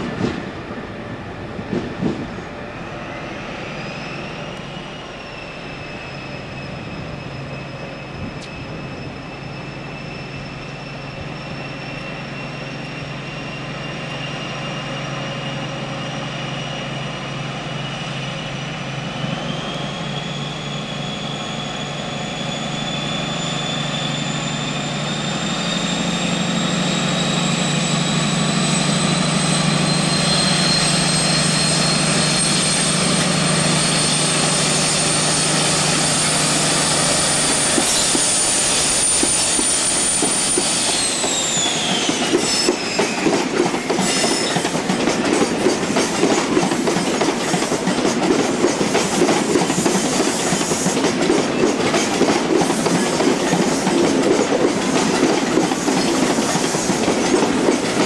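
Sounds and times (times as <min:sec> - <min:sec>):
diesel train engine working hard: 0:00.0 - 0:58.0.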